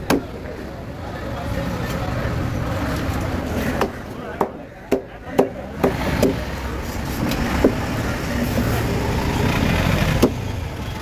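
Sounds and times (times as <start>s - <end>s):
vehicle engine rumble: 0.0s - 11.0s
cleaver chopping fish on wood: 3.8s - 6.4s, 10.2s - 10.4s.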